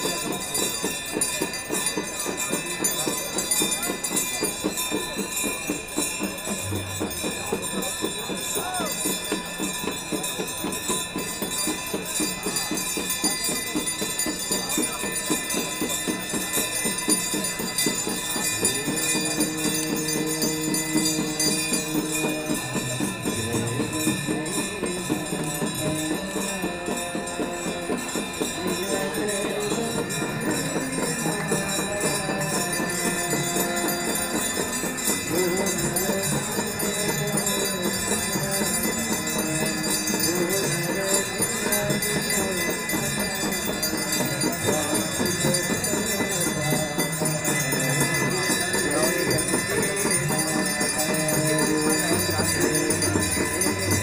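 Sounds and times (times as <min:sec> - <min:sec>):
hand bells ringing: 0:00.0 - 0:54.0
rhythmic jingling beat: 0:00.0 - 0:54.0
person singing: 0:17.4 - 0:54.0.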